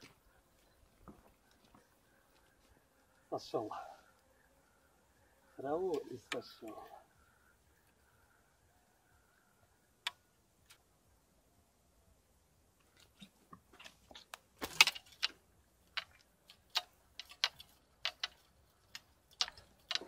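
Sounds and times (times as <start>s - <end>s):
fishing reel clicking and rattling: 16.0s - 20.0s.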